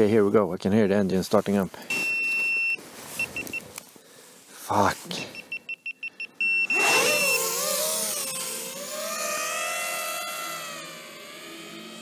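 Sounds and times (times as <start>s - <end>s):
short electronic beeps: 1.9s - 3.7s, 5.2s - 7.5s
steady electronic beep: 5.3s - 7.5s
drone motor whine: 6.6s - 12.0s.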